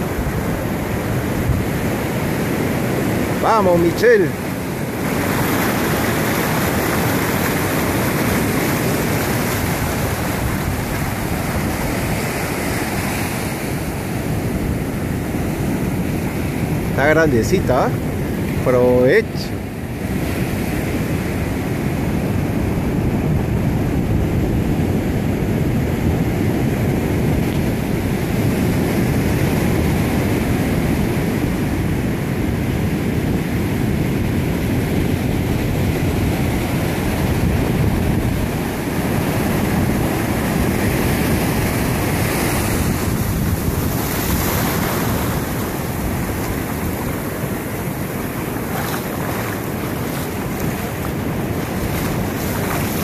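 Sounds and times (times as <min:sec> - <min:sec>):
wind buffeting microphone: 0:00.0 - 0:17.0, 0:19.6 - 0:53.0
surf washing on beach: 0:00.0 - 0:53.0.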